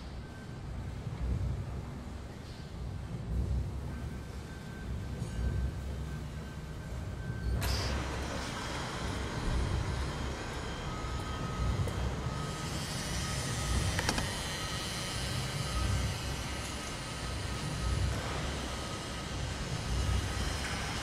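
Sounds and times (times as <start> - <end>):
sharp click: 14.0 - 14.3.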